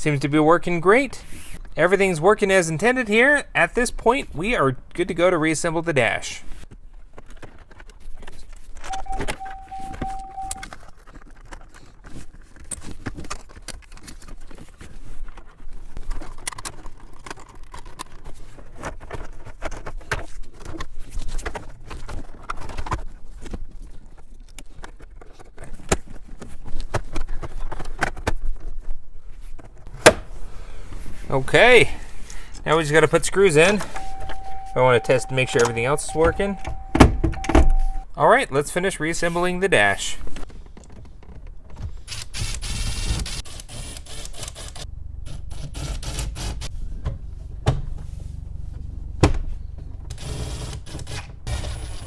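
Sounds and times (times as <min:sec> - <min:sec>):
short steady beep: 0:08.9 - 0:10.6, 0:33.7 - 0:38.1.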